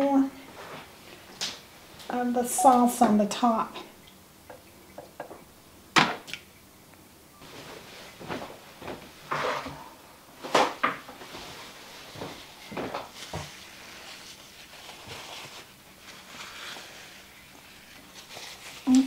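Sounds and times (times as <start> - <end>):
paper towel rustling and tearing: 10.4 - 19.0.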